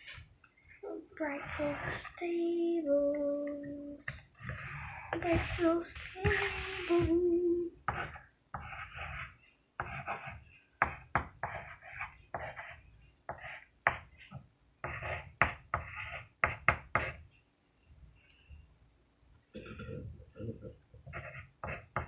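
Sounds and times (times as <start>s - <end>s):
pencil scratching on paper: 1.2s - 2.4s, 4.4s - 7.1s, 7.8s - 17.4s, 21.0s - 22.0s
person humming: 6.2s - 7.8s.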